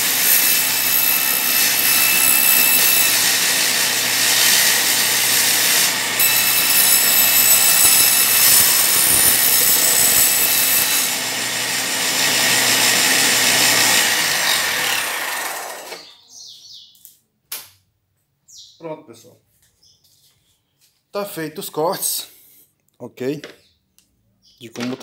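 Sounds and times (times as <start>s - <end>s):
electric saw cutting wood: 0.0s - 16.2s.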